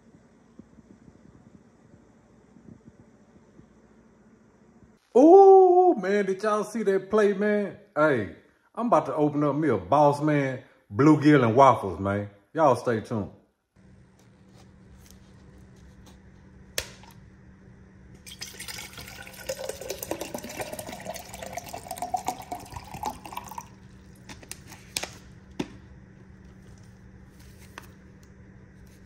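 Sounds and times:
water pouring into metal cup: 0:18.2 - 0:24.3.

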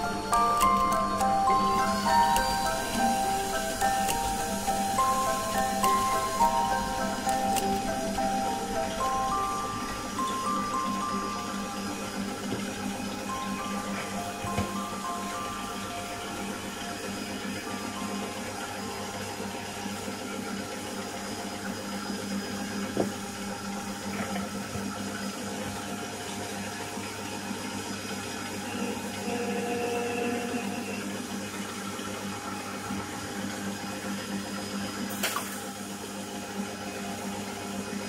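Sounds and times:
metal lathe humming: 0:00.0 - 0:24.6.

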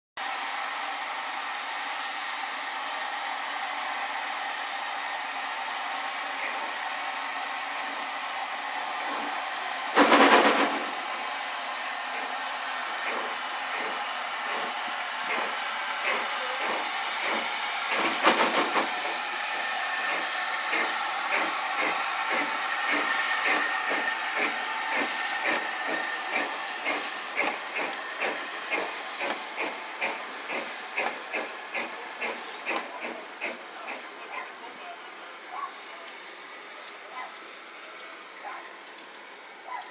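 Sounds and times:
steam hissing: 0:00.2 - 0:34.7
locomotive exhaust chuffs: 0:13.0 - 0:34.0.

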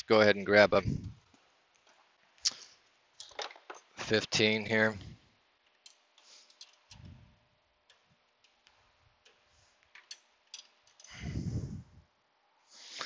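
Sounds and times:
light metal clicks and taps: 0:07.8 - 0:11.1.

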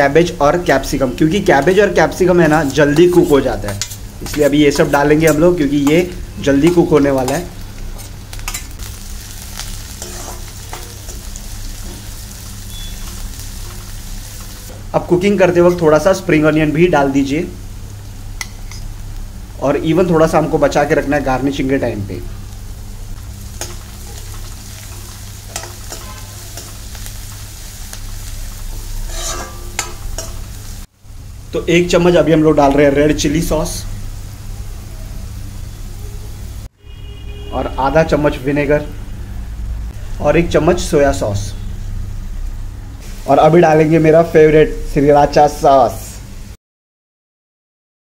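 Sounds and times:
vegetables sizzling in hot oil: 0:00.2 - 0:36.7, 0:40.8 - 0:46.6
ladle scraping and clinking on pan: 0:29.0 - 0:30.4.

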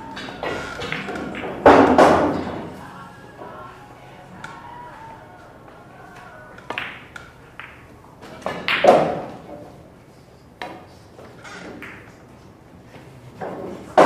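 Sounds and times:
billiard balls clicking: 0:00.0 - 0:02.8, 0:04.4 - 0:09.8, 0:10.6 - 0:12.6.

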